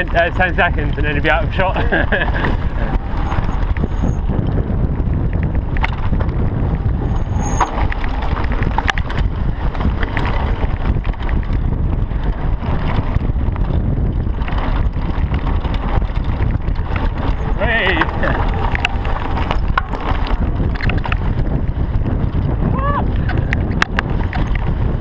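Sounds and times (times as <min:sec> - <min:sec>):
bike rattling: 0:00.0 - 0:25.0
wind on microphone: 0:00.0 - 0:25.0
tyres crunching over stones: 0:15.7 - 0:21.4.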